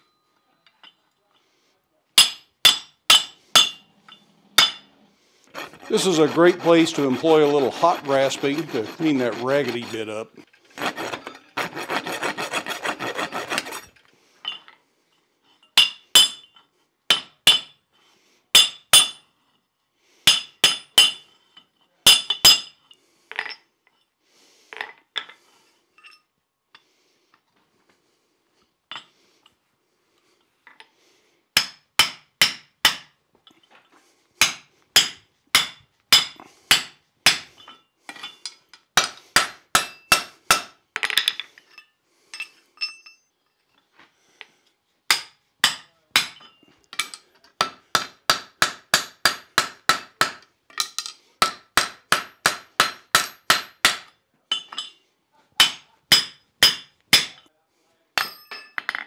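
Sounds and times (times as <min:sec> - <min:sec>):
rasp scraping steel bar: 0:04.6 - 0:14.0.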